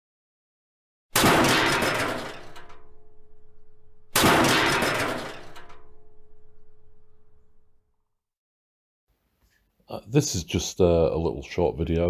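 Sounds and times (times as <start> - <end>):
crash impact sound effect: 1.2 - 7.7.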